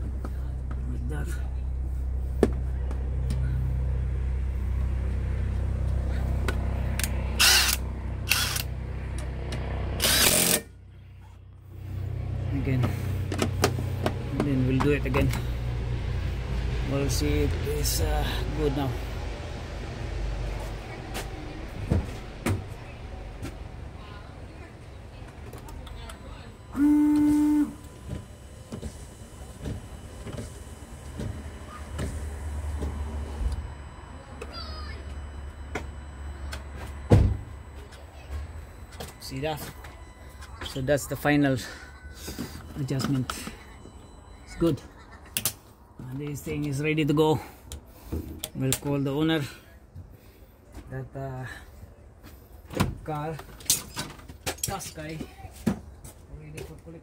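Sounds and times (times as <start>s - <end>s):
wiper motor humming: 11.7s - 45.2s.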